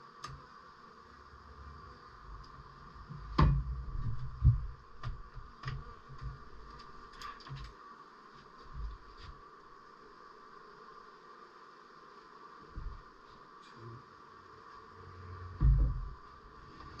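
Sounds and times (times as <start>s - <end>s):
heavy thuds on wooden beehive: 3.0s - 6.8s, 12.6s - 13.2s, 15.4s - 16.6s
light taps and clunks: 3.1s - 7.7s.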